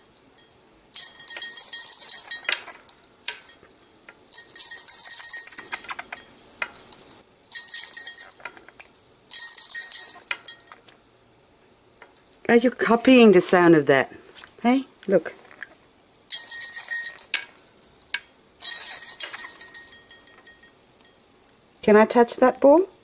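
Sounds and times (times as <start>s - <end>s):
small metal bell jingling: 0.0s - 11.0s, 12.0s - 12.5s, 16.3s - 21.2s.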